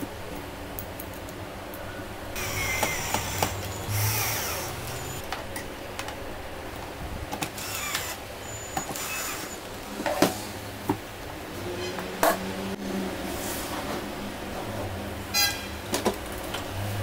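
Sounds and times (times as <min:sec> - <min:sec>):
cordless drill running: 0:02.4 - 0:05.2, 0:07.6 - 0:09.7.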